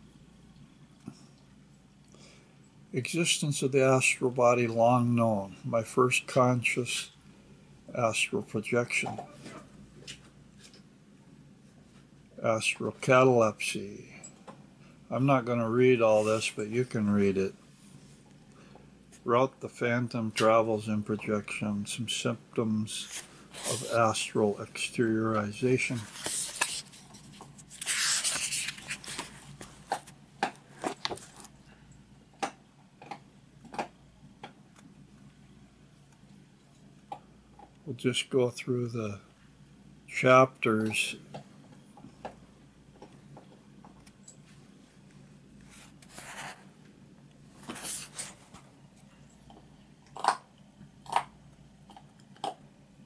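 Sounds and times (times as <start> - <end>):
book pages turning: 25.9 - 30.2, 45.7 - 46.7, 47.6 - 48.6.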